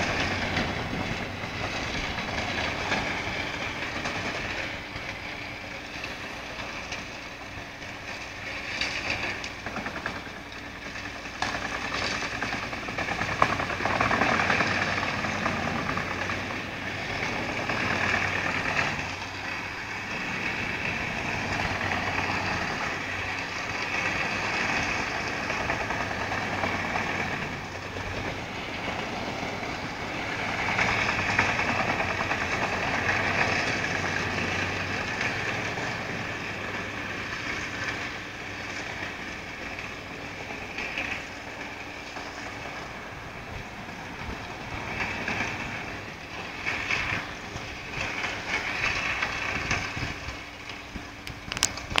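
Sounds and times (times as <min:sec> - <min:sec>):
excavator engine running: 0:00.0 - 0:52.0
tree chipper grinding wood: 0:00.0 - 0:52.0.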